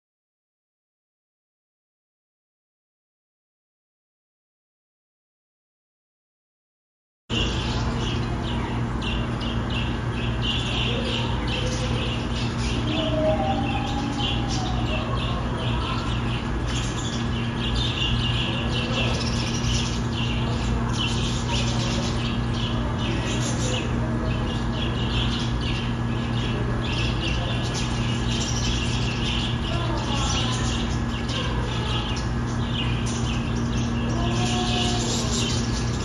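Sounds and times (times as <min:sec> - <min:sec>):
budgerigars chattering and chirping: 0:07.3 - 0:36.0
steady low hum: 0:07.3 - 0:36.0.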